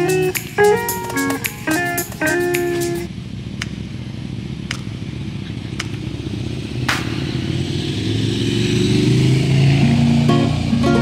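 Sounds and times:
low outdoor rumble: 2.2 - 11.0.

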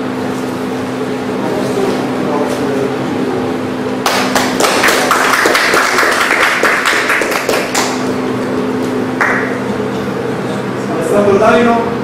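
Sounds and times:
small group applauding: 4.0 - 9.6.

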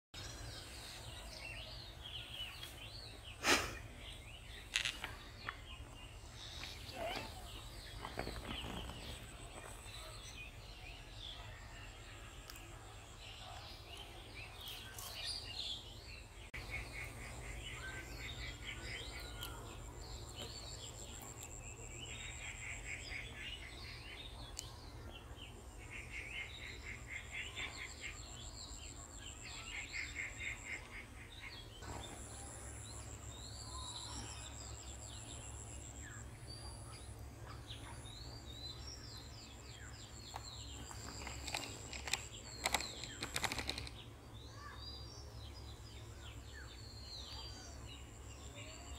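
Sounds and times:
birds chirping and trilling: 0.2 - 48.9
sharp clicks and rustles: 40.3 - 44.0.

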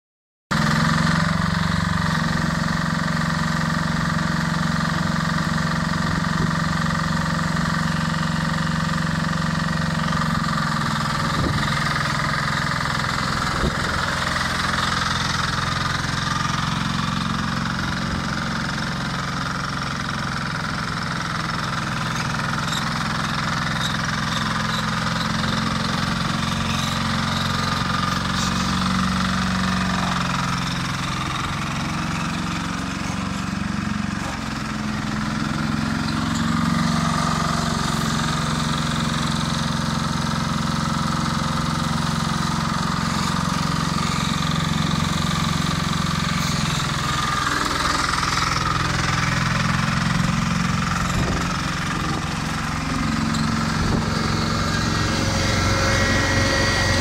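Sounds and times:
machine engine running: 0.6 - 57.0
high-pitched whine: 51.0 - 57.0.

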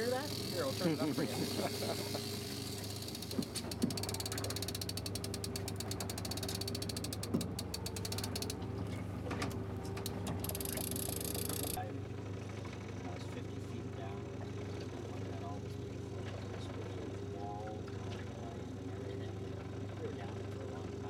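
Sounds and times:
outboard motor humming: 0.0 - 21.0
fishing reel clicker ratcheting: 2.3 - 8.6, 10.0 - 11.8.

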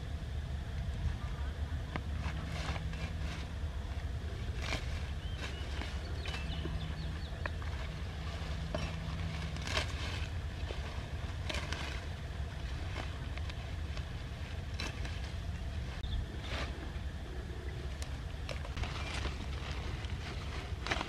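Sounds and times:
low rumble: 0.0 - 21.0
knife cutting stems: 4.5 - 15.4.

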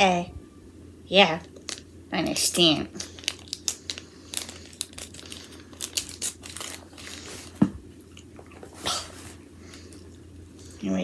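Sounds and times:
packaging crinkling and tearing: 2.9 - 7.6.

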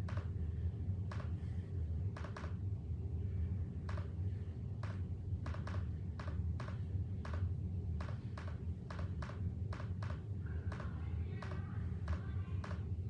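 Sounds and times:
light irregular clicks: 0.0 - 0.4, 1.1 - 1.4, 2.1 - 2.6, 3.8 - 4.2, 4.8 - 12.9.

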